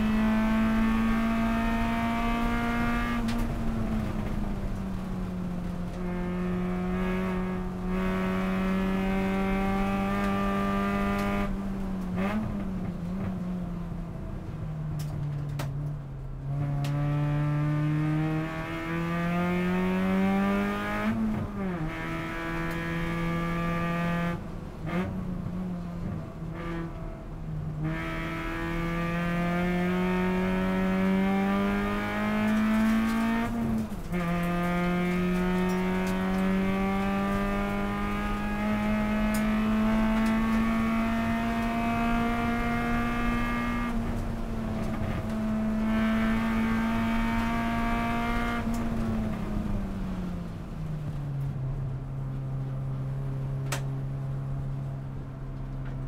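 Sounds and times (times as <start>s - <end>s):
race car engine revving: 0.0s - 13.3s, 16.5s - 25.3s, 27.7s - 50.2s.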